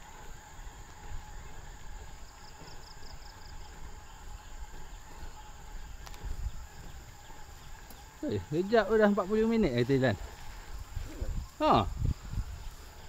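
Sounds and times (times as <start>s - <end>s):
insect buzzing: 0.0s - 13.0s.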